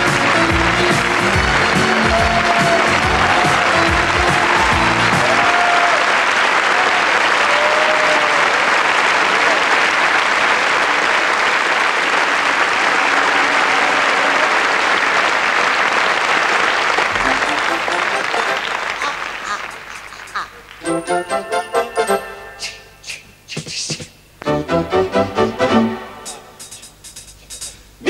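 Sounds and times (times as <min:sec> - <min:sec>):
audience applauding: 0:00.0 - 0:21.0
orchestra final notes: 0:17.0 - 0:19.4, 0:24.4 - 0:26.6.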